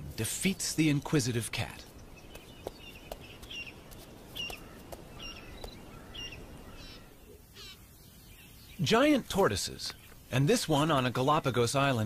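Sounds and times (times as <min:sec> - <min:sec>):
low background hiss: 0:00.0 - 0:12.0
bird chirping: 0:01.8 - 0:10.5.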